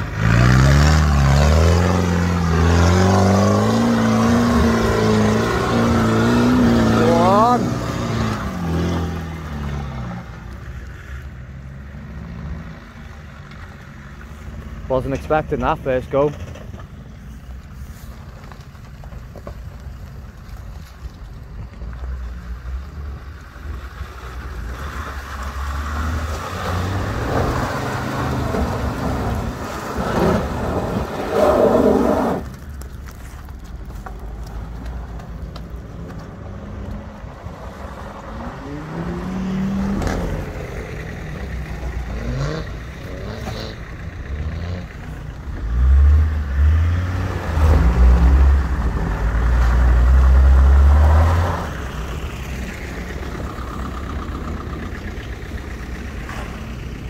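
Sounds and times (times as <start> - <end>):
off-road vehicle engine revving: 0.0 - 10.6, 22.6 - 32.6, 36.5 - 57.0.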